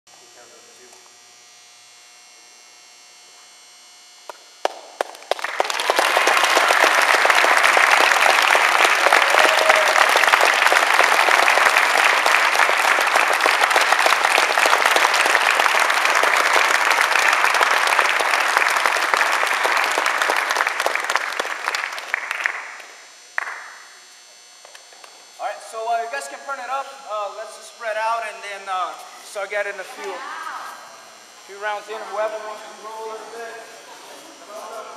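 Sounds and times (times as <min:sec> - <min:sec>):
group of people applauding: 0:04.6 - 0:23.8.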